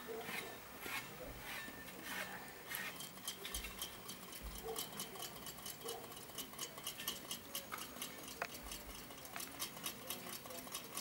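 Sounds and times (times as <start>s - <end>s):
rapid ticking: 2.9s - 11.0s.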